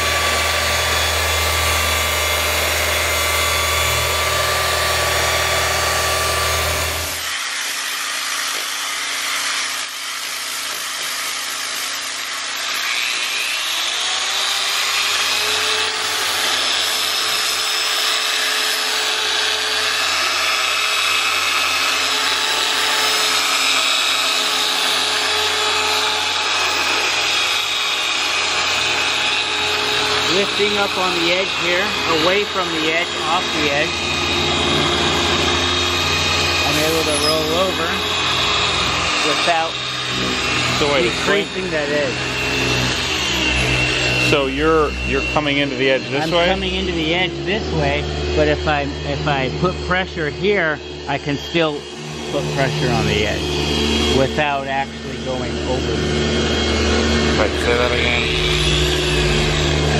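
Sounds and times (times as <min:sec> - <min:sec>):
polisher low drone: 0:00.0 - 0:07.3, 0:28.1 - 0:59.9
polisher whining: 0:00.0 - 0:59.9.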